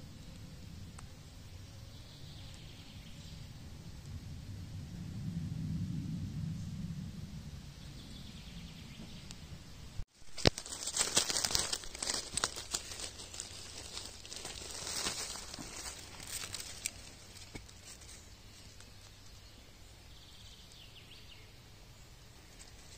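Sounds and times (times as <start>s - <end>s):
dry leaves rustling and crackling: 10.1s - 19.2s
twig snapping: 10.2s - 18.1s.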